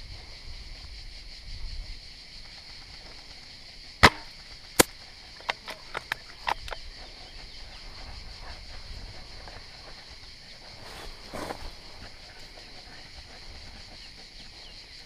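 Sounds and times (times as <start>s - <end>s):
airsoft rifle firing: 4.0s - 4.9s.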